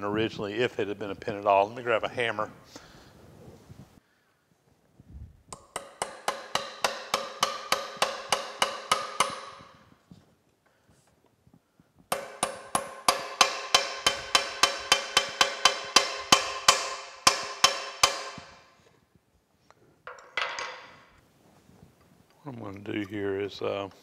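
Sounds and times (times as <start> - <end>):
hammer striking metal pin: 5.5 - 9.9, 12.1 - 18.8.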